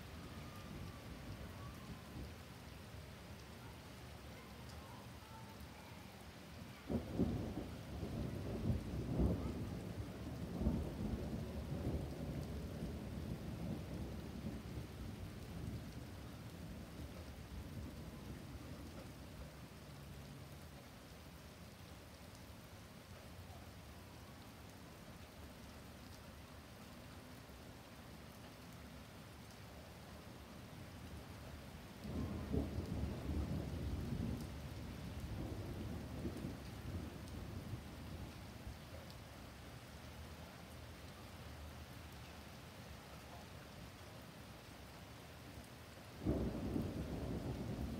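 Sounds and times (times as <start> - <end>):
steady rain: 0.0 - 47.9
thunder rumbling: 6.8 - 19.5, 32.0 - 38.5, 46.2 - 47.9.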